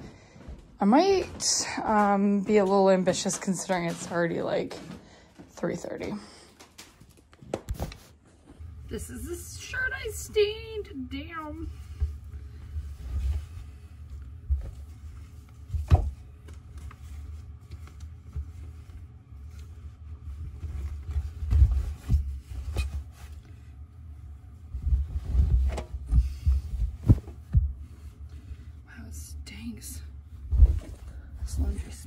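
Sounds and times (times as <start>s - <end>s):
clothes thumping into washing drum: 15.7s - 16.3s.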